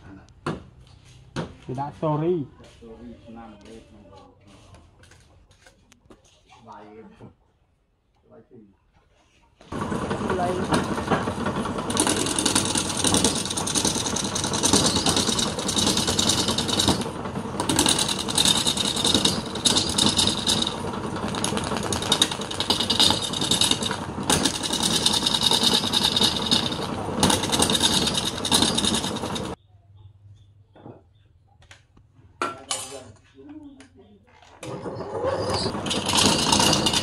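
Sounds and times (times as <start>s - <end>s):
wood lathe running: 9.6s - 29.6s, 34.6s - 37.0s
turning tool rasping on wood: 9.8s - 29.6s, 35.1s - 37.0s.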